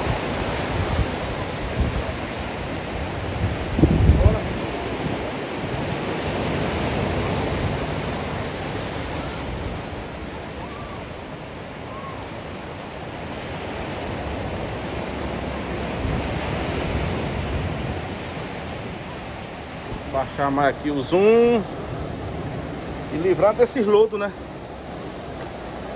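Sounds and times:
small waves on sandy beach: 0.0s - 25.9s.

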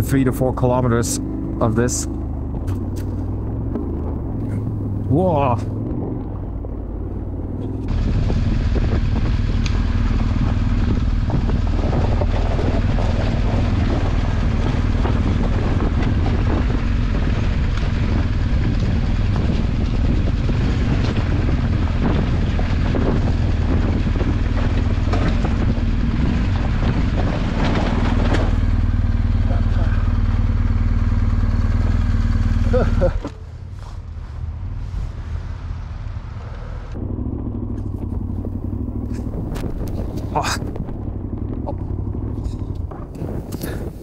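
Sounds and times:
motorcycle engine at low revs: 0.0s - 44.0s
tyres crunching over gravel: 37.2s - 44.0s.

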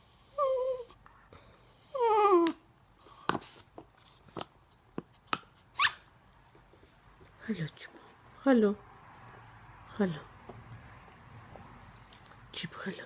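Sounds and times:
rubber toy squeal: 5.8s - 6.1s.

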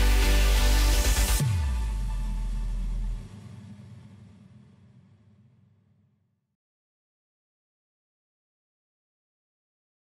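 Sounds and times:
deep electronic bass note: 0.0s - 4.2s.

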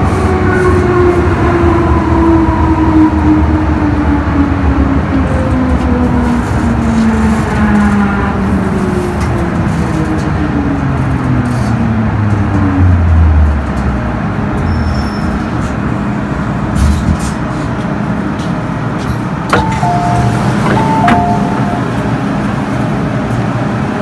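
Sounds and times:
train traction motors humming: 15.4s - 24.0s
train cabin rumble: 15.6s - 24.0s
two-tone door warning chime: 19.5s - 22.4s.

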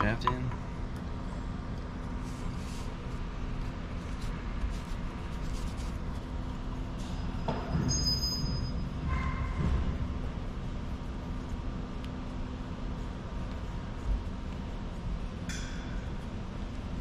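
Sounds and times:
workshop rumble and hum: 0.0s - 17.0s
high squeak: 7.8s - 8.9s.

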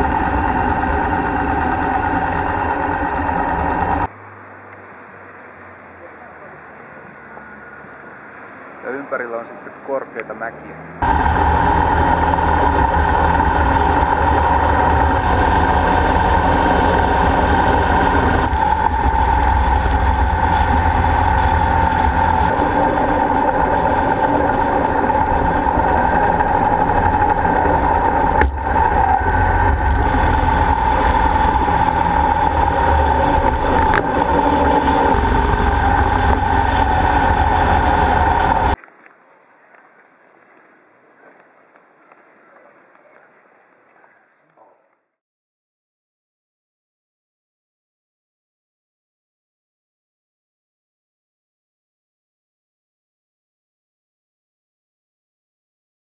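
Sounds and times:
motorcycle engine running: 0.0s - 4.1s, 11.0s - 38.8s.

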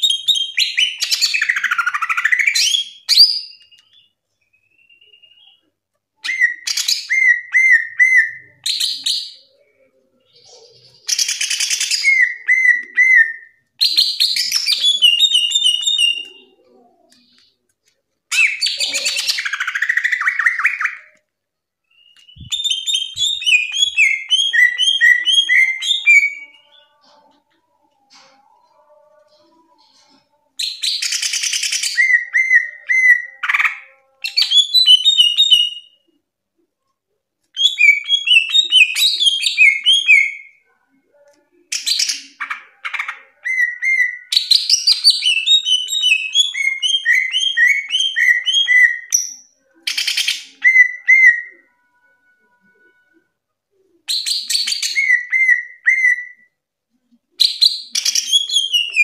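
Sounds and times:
bird singing whistled notes: 21.8s - 26.9s.

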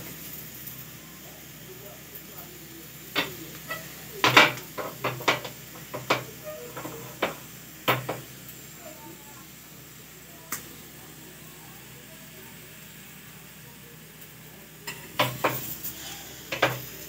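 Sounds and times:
metal spatula scraping a griddle: 3.2s - 8.2s, 14.9s - 17.0s.

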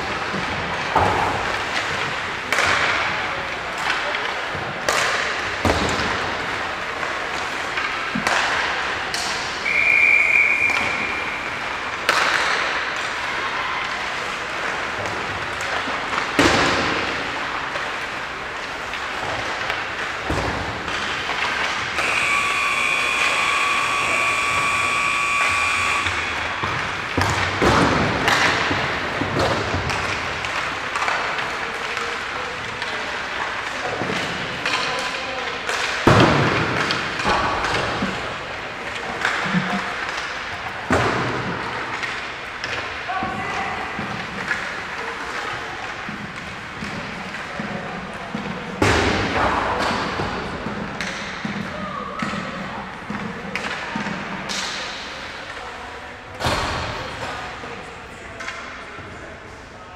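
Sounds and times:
pucks cracking against boards: 0.0s - 9.7s, 10.6s - 55.6s
echoing hall background: 0.0s - 59.9s
high electronic tone: 22.0s - 26.5s.

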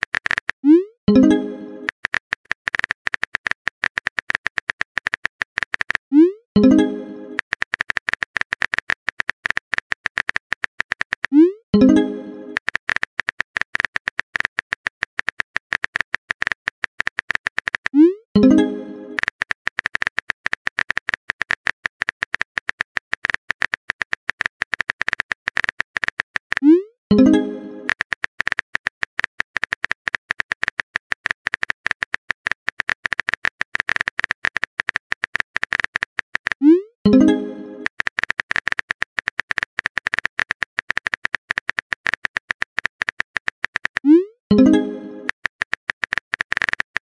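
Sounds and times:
keyboard typing clicks: 0.0s - 47.0s.

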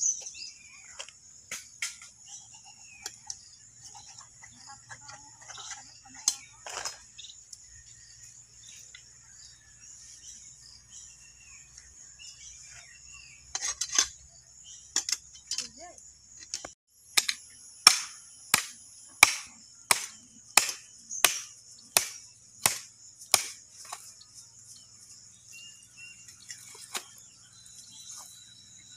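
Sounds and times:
chopping knife hacking bone: 17.8s - 23.6s.

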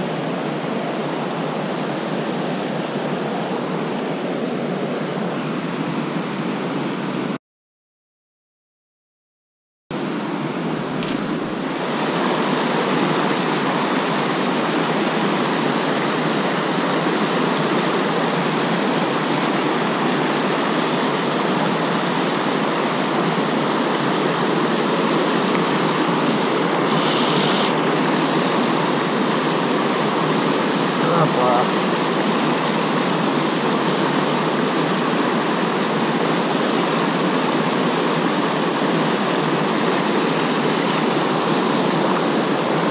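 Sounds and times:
river rapids rushing: 11.2s - 42.9s.

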